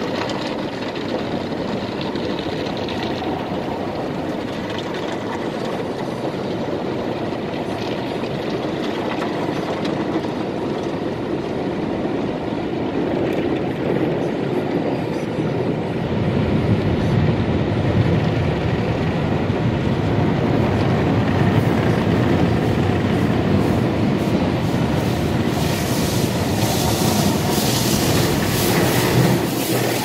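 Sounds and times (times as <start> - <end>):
water spray: 25.0 - 30.0.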